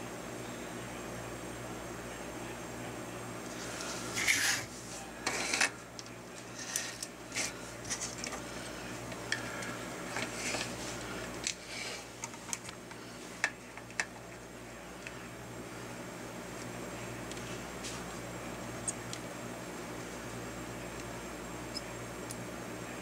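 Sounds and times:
steady low hum: 0.0s - 23.0s
fingers scratching wires: 6.4s - 8.3s.

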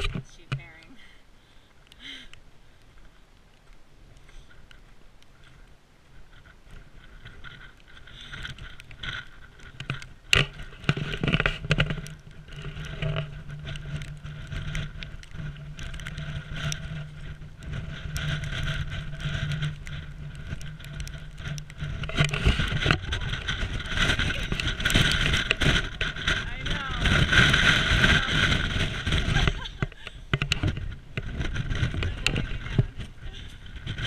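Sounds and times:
gusty wind buffeting microphone: 4.1s - 34.0s
knocks and rustles: 6.3s - 34.0s.

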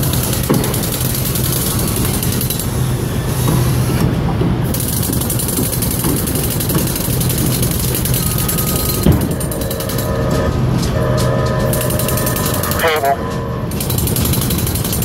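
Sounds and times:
crane machinery humming: 0.0s - 15.0s
scattered clicks: 4.8s - 15.0s.

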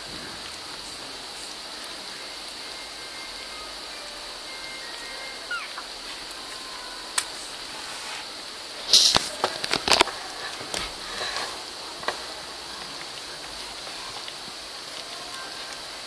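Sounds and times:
steady hiss: 0.0s - 16.0s
sharp rustles and clicks: 8.9s - 16.0s.

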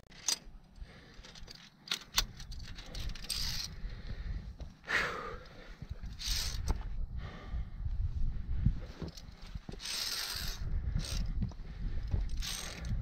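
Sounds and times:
carabiners clinking on metal: 0.0s - 3.8s, 5.9s - 6.7s, 8.9s - 11.4s, 12.0s - 13.0s
wind and handling rumble: 0.0s - 13.0s.

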